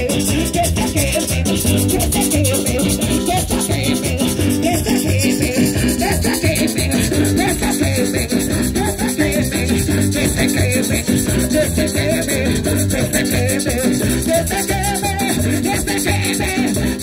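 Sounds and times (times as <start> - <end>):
woman singing into a microphone: 0.0 - 12.4
metal shaker rattling: 0.0 - 16.8
keyboard: 0.0 - 17.0.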